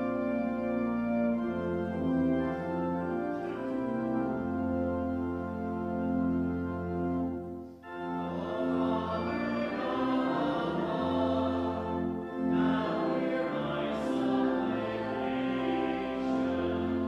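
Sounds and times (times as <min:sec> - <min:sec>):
church organ playing: 0:00.0 - 0:17.0
voices singing hymn: 0:07.8 - 0:17.0.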